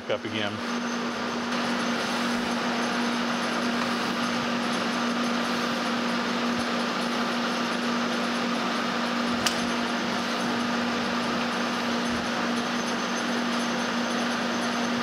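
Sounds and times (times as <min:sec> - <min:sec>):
metal lathe humming: 0:00.0 - 0:15.0
sharp click: 0:09.4 - 0:09.7.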